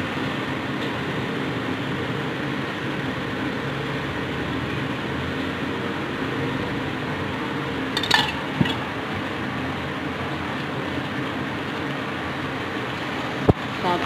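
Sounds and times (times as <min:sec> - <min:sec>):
steady background hum: 0:00.0 - 0:14.0
whisk clinking: 0:07.9 - 0:09.0.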